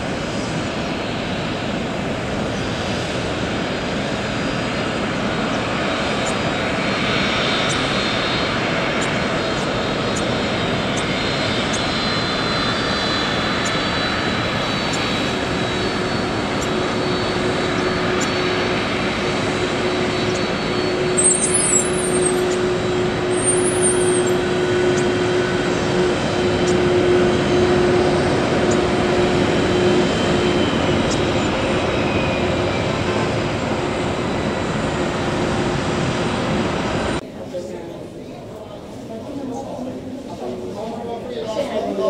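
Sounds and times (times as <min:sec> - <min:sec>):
jet engines rushing: 0:00.0 - 0:42.0.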